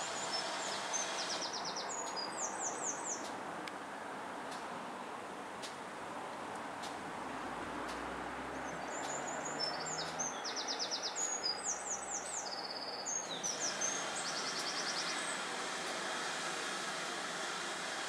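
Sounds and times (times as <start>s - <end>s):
steam hissing: 0.0s - 2.5s, 13.3s - 18.0s
songbird trilling and chirping: 0.2s - 3.3s, 8.6s - 15.2s.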